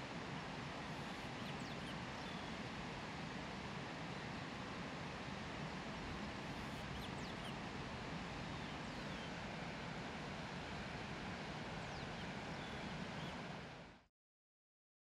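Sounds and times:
faint bird chirps: 1.0s - 2.6s, 6.5s - 7.6s, 11.8s - 13.4s.

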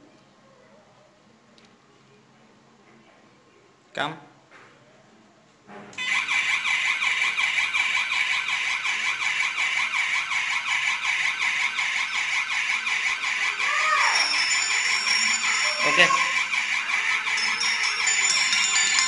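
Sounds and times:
warbling electronic alarm siren: 6.0s - 19.0s.

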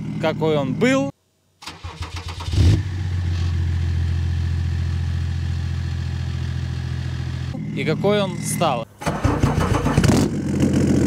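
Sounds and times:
diesel engine starting and idling: 1.6s - 11.0s.

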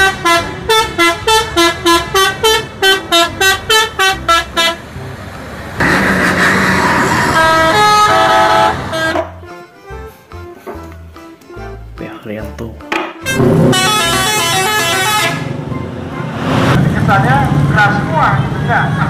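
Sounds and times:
bus air horn tune: 0.0s - 4.9s, 5.8s - 9.7s, 13.2s - 16.3s.

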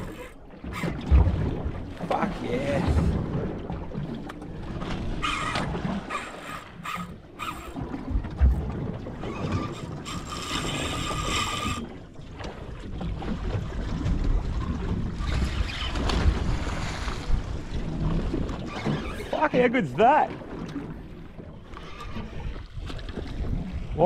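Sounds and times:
fishing reel drag buzzing: 0.0s - 1.0s, 5.2s - 7.8s, 9.3s - 11.9s
wind rumble on microphone: 0.7s - 6.0s, 10.8s - 19.4s, 20.7s - 24.0s.

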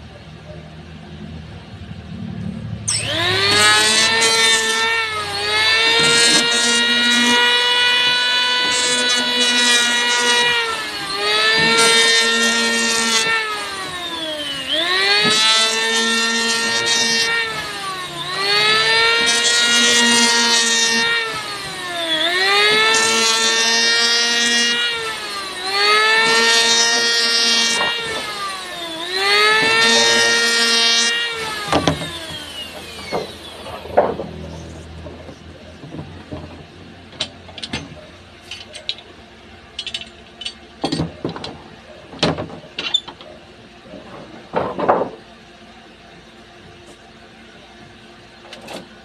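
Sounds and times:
power tool whining cutting wood: 2.5s - 39.0s
wood knocking: 44.3s - 45.2s.

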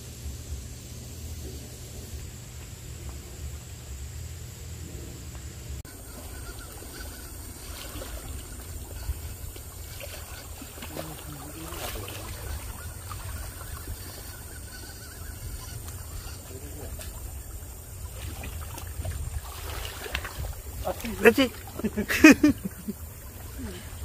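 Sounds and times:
low rumble of wind: 0.0s - 24.0s
river water lapping on rocks: 5.9s - 24.0s.

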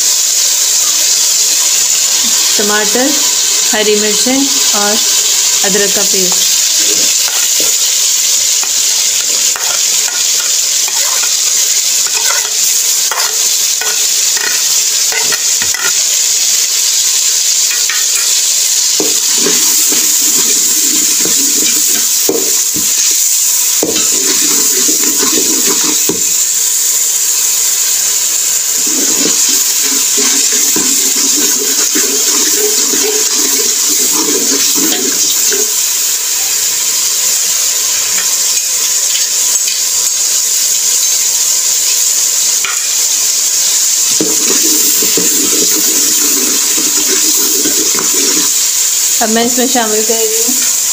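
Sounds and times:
vegetables sizzling in hot oil: 0.0s - 50.9s
metal spoon scraping pot: 9.4s - 11.4s, 12.0s - 16.0s, 28.8s - 35.7s.

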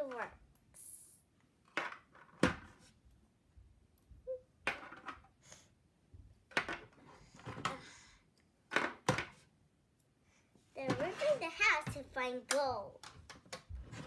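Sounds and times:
plastic figures clacking on wood: 12.5s - 14.0s.

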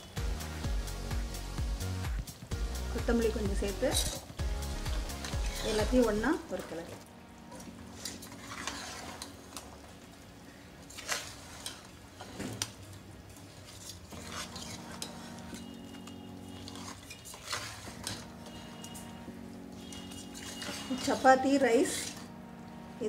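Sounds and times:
ladle stirring thick gravy: 4.7s - 6.0s, 6.6s - 22.4s
metal clinking and scraping on pot: 5.1s - 6.2s, 7.6s - 10.1s, 10.8s - 19.1s, 19.8s - 22.4s.

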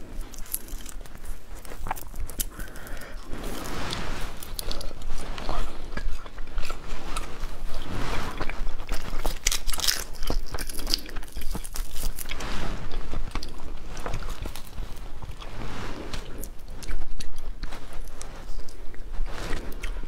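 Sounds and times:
crunching frozen shrimp: 0.0s - 3.7s, 4.3s - 12.4s
frozen shrimp cracking by hand: 0.2s - 3.3s, 8.9s - 12.3s.

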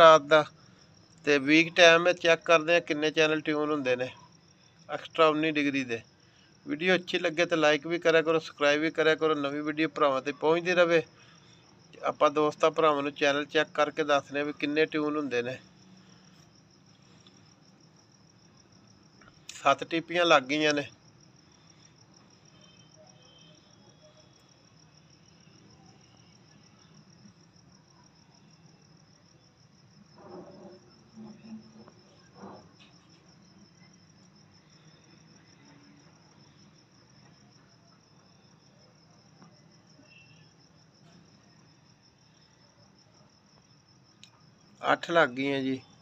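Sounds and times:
cricket trilling: 0.0s - 46.0s
faint short sounds: 30.2s - 34.0s.

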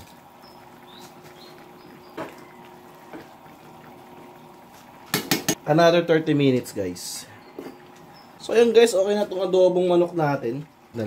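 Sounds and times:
soup simmering: 0.0s - 11.0s.

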